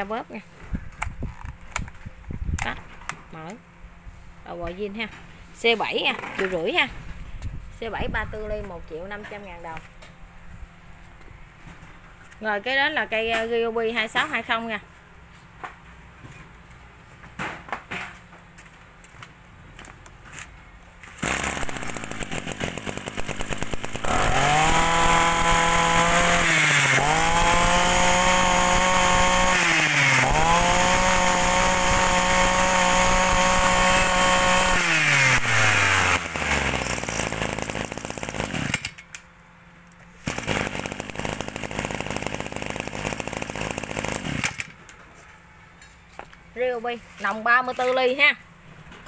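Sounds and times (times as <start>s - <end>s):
brush cutter engine revving: 21.2s - 39.0s, 40.2s - 44.8s.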